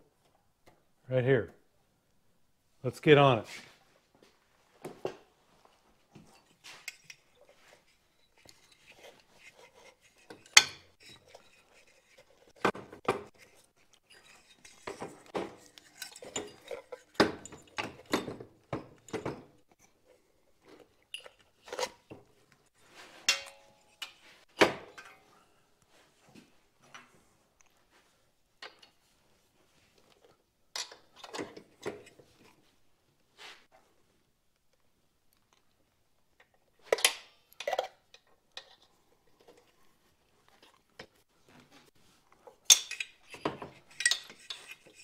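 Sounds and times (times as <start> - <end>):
metal parts clinking and knocking: 6.3 - 19.6, 42.6 - 45.0.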